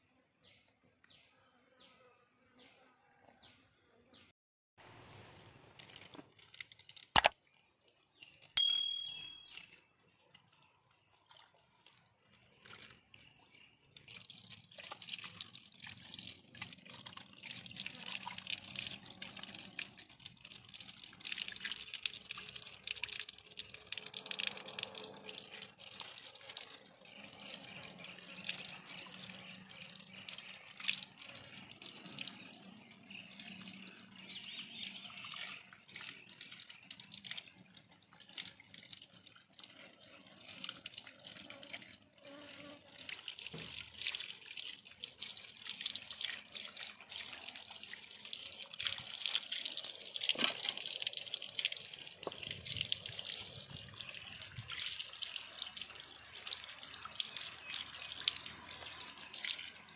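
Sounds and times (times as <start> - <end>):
water pouring and splashing: 4.8 - 59.9
sharp clicks: 7.2 - 7.4
brief ringing tone: 8.6 - 9.6.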